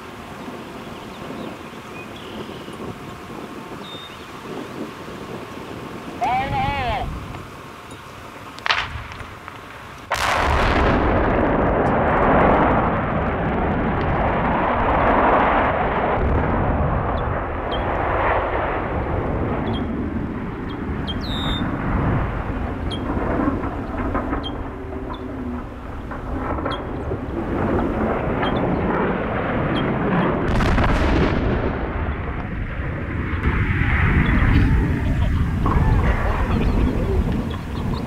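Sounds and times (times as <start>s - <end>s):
rumble of collapsing structure: 8.5s - 38.0s
loud explosion blast: 8.6s - 9.5s, 10.1s - 38.0s.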